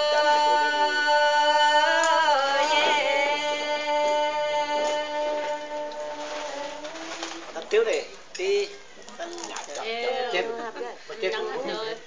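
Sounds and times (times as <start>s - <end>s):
women singing in harmony: 0.0s - 7.6s.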